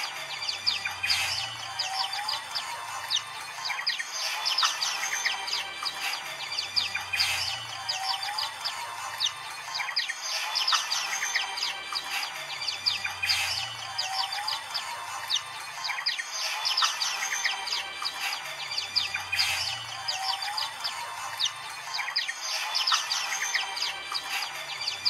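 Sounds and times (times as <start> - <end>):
flock of birds chirping: 0.0 - 25.0.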